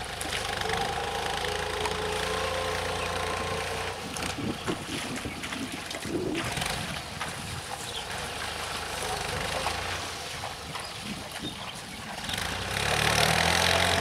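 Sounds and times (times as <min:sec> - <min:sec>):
tractor diesel engine running: 0:00.0 - 0:05.2, 0:12.0 - 0:14.0
rotary tiller churning mud: 0:00.0 - 0:14.0
water splashing: 0:00.0 - 0:14.0.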